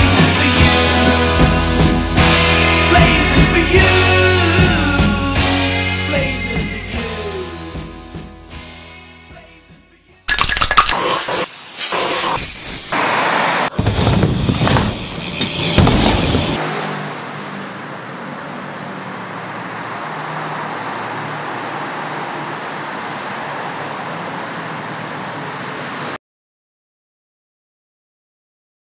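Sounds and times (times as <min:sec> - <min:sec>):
road traffic hum: 0:12.9 - 0:26.2.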